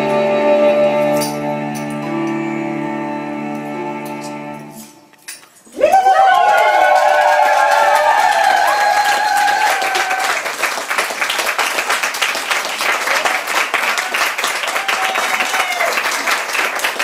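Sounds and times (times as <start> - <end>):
audience applauding: 5.8 - 17.0.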